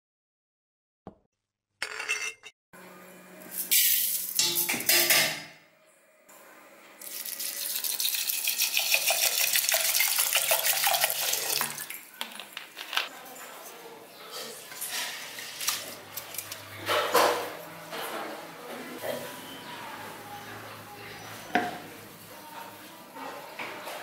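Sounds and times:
dishes clattering: 1.8s - 2.5s, 4.4s - 5.6s, 14.4s - 19.4s
water pouring into steel bowl: 7.0s - 12.1s.

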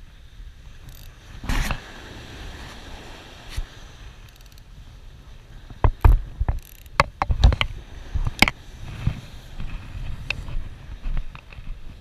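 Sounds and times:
low wind rumble: 0.0s - 12.0s
fishing reel and rod clicks: 0.8s - 1.2s, 4.2s - 4.7s, 6.0s - 7.7s.

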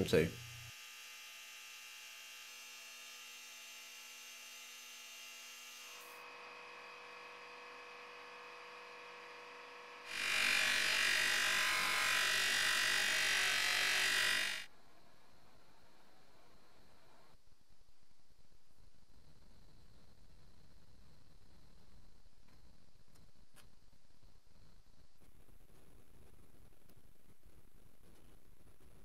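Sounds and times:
polishing wheel whirring: 0.4s - 14.7s.

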